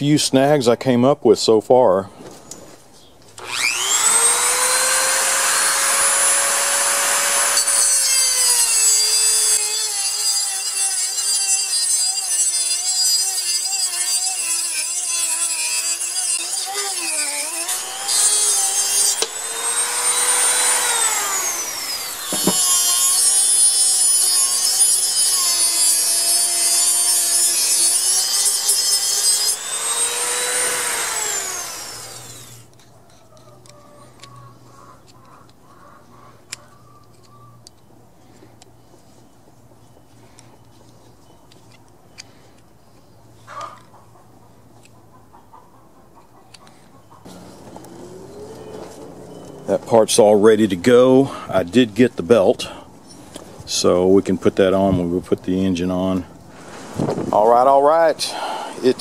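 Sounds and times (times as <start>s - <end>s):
cutting wheel grinding metal: 3.4s - 32.8s, 47.3s - 52.6s, 57.3s - 59.0s
rotary tool motor whine: 3.4s - 32.8s.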